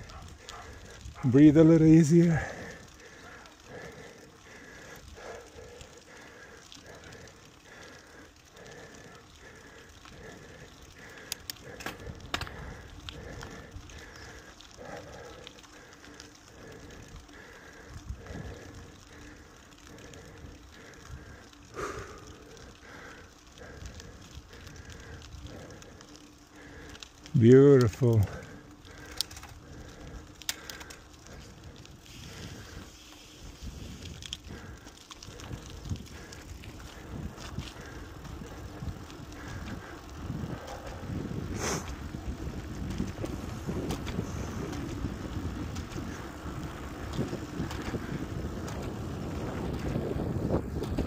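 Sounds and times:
wind rumble on microphone: 0.0s - 3.0s, 31.2s - 51.0s
bicycle tyres crackling on stones: 0.0s - 51.0s
bike clicks: 0.0s - 51.0s
sharp clicks: 11.2s - 14.4s.

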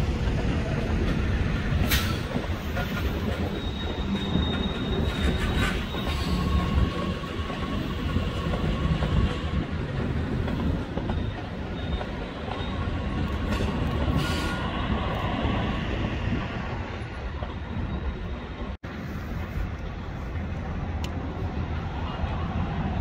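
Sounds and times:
train wheels rumbling on rails: 0.0s - 23.0s
wheel squeals: 2.0s - 9.3s, 10.6s - 15.0s.

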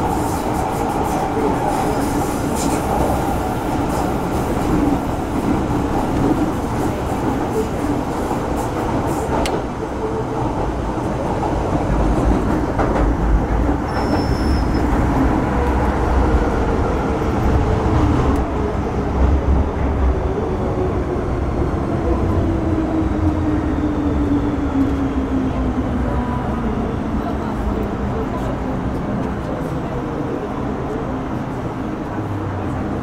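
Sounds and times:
train wheels rumbling on track: 0.0s - 33.0s
high squeal: 13.9s - 14.9s.

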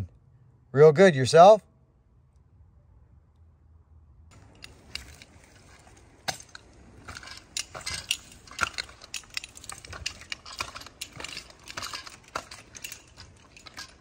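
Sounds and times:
climbing gear clinks and knocks: 4.3s - 14.0s.

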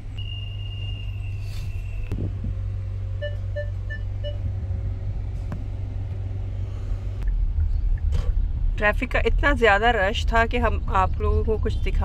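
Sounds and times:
car rumble inside cabin: 0.0s - 12.0s
short beeps: 0.2s - 2.1s, 3.2s - 4.4s.

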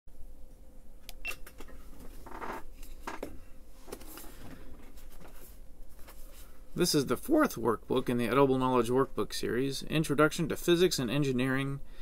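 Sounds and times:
paper rustling: 3.8s - 6.6s.

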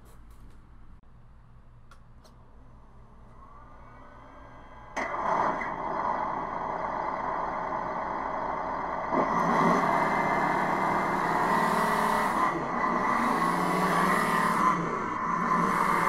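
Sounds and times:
toy tank simulated engine: 3.4s - 16.0s.

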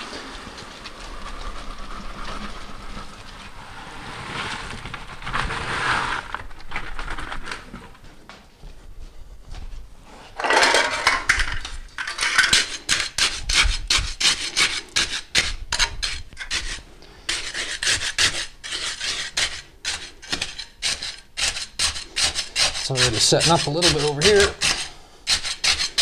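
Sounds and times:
trowel scraping wet concrete: 0.0s - 6.4s, 12.0s - 26.0s.

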